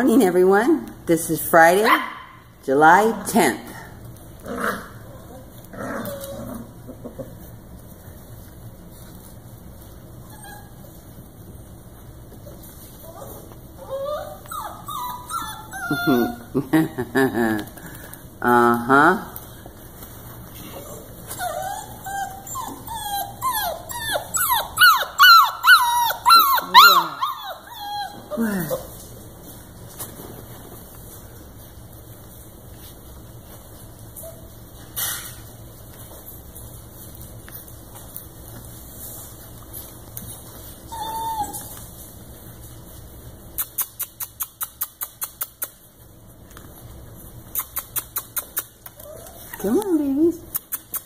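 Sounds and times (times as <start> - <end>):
puppy whimpering: 4.6 - 7.5, 10.2 - 11.2, 12.4 - 16.7, 20.6 - 29.1, 39.6 - 42.0, 47.5 - 51.0.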